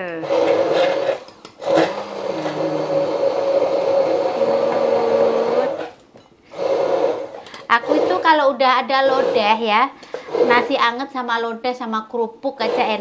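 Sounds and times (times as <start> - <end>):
electric blender running: 0.0 - 10.9, 12.6 - 13.0.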